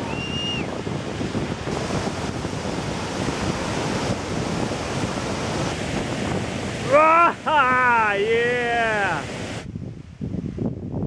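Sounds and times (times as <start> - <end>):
high whistled note: 0.0 - 0.7
waterfall and river rushing: 0.0 - 9.8
wind noise on microphone: 0.0 - 11.0.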